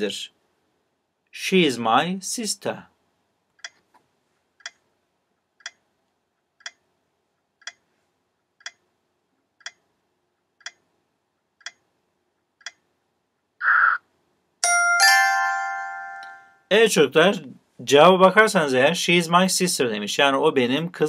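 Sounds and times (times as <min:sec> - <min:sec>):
timer ticking: 0:04.6 - 0:04.9, 0:05.5 - 0:05.9, 0:06.6 - 0:06.9, 0:07.6 - 0:07.9, 0:08.6 - 0:08.9, 0:09.6 - 0:11.0, 0:11.6 - 0:11.9, 0:12.5 - 0:12.9
bright chime ringing: 0:14.6 - 0:16.7.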